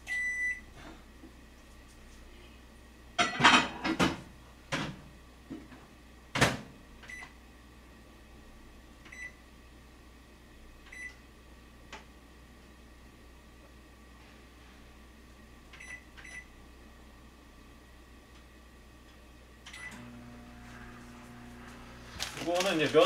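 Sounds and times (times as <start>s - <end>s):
short high microwave beeps: 0.0s - 0.7s, 9.1s - 9.4s, 10.9s - 11.2s, 15.8s - 16.5s, 19.7s - 20.0s
steady low hum: 0.0s - 23.0s.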